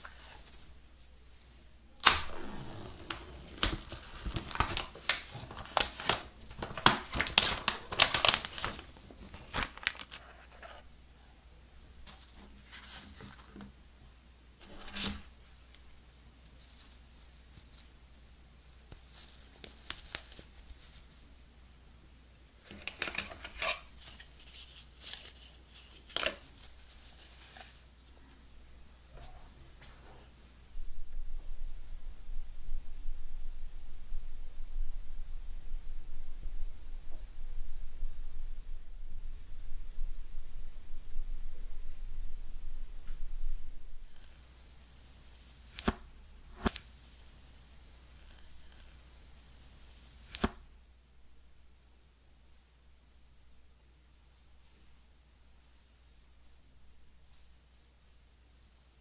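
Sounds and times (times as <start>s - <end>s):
paper packet rustling: 2.0s - 10.8s, 22.6s - 27.9s
plastic wrap crinkling: 2.0s - 10.8s, 22.6s - 27.9s.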